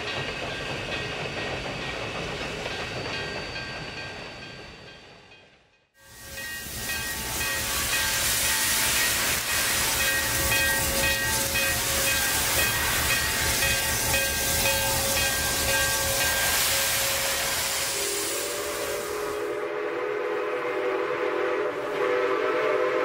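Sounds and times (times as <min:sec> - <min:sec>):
steam locomotive venting steam: 0:06.0 - 0:23.0.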